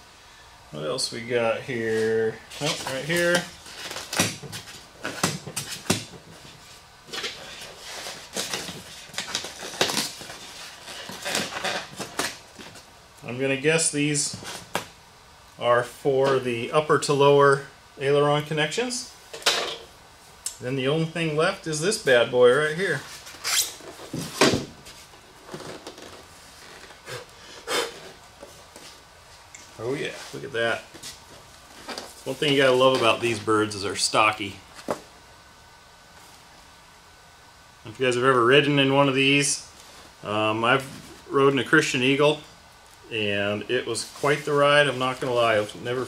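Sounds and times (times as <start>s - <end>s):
styrofoam scraping and rustling: 1.8s - 12.8s.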